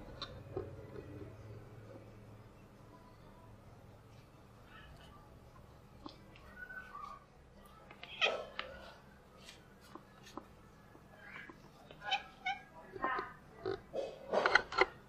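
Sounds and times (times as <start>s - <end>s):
cat meowing: 12.0s - 12.7s.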